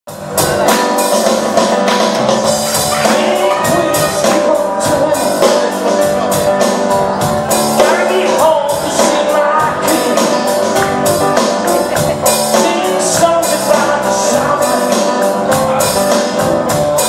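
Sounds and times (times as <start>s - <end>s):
drums and cymbals beat: 0.1s - 17.0s
live band playing: 0.1s - 17.0s.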